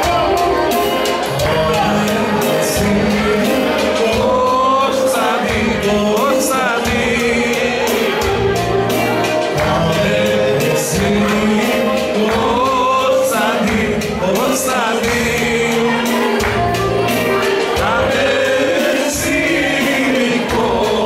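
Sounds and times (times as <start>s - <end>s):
folk singing: 0.0s - 21.0s
steady percussive beat: 0.0s - 21.0s
wavering instrumental melody: 0.0s - 21.0s.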